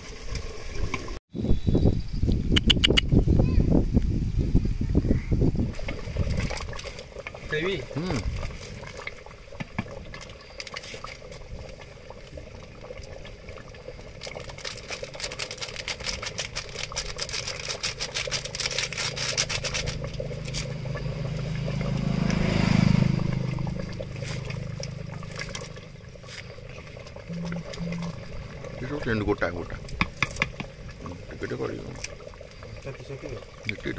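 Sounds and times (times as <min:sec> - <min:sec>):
motor vehicle passing by: 0:20.2 - 0:26.4.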